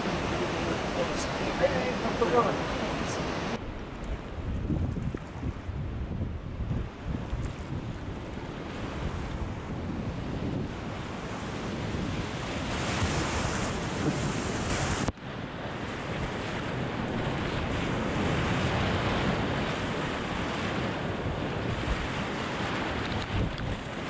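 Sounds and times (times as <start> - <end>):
whitewater rushing and splashing: 0.0 - 3.6
wind buffeting microphone: 0.0 - 24.0.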